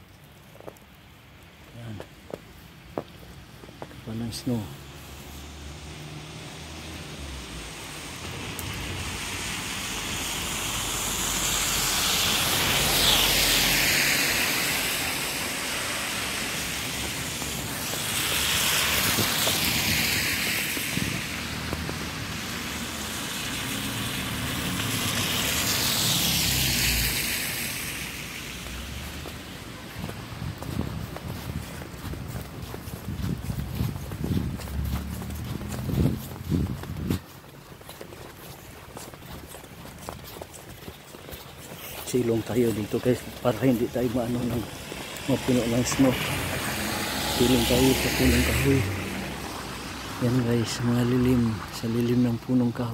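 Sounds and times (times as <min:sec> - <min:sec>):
tyre hiss on wet slush: 0:04.7 - 0:30.1, 0:41.5 - 0:50.5.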